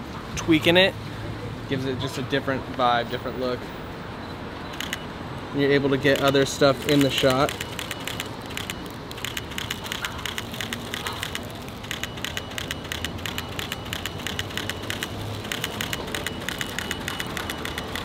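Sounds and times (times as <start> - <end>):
camera shutter clicking: 4.8 - 5.1, 6.0 - 18.0.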